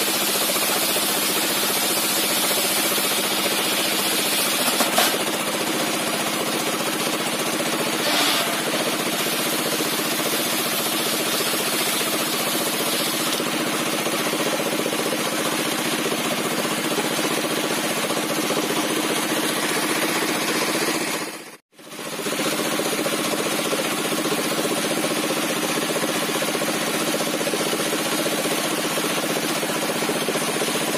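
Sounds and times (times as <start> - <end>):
circular saw cutting timber: 0.0 - 21.6
engine running: 0.0 - 30.9.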